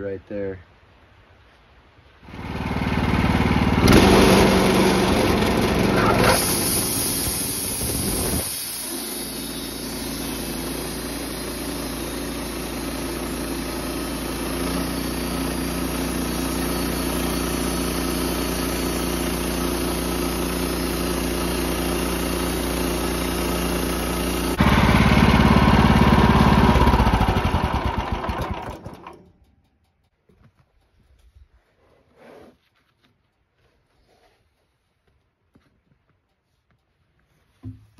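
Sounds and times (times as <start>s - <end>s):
band sawmill sawing log: 2.3s - 29.1s.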